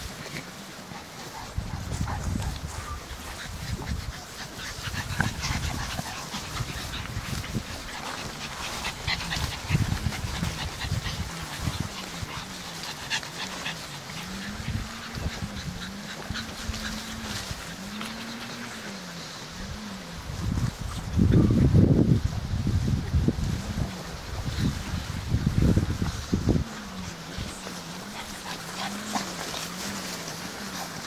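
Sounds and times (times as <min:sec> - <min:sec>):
scuffling and rustling in grass: 0:00.0 - 0:31.0
puppies yipping and whimpering: 0:00.8 - 0:19.6.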